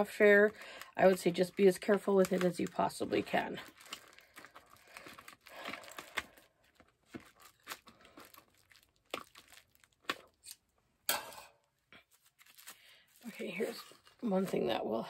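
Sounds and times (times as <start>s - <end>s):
plastic crinkling: 0.0s - 10.6s, 11.9s - 15.0s
scissors snipping plastic bag: 0.0s - 10.6s.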